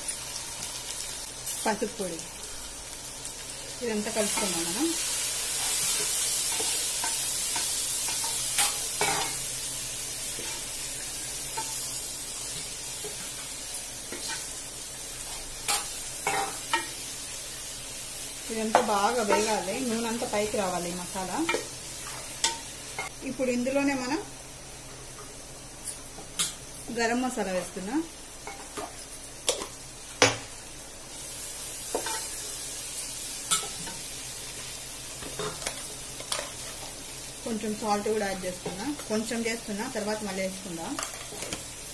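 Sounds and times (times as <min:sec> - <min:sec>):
masala sizzling in oil: 0:00.0 - 0:41.9
spatula stirring and scraping pan: 0:04.0 - 0:14.6, 0:18.5 - 0:20.3, 0:31.6 - 0:37.2.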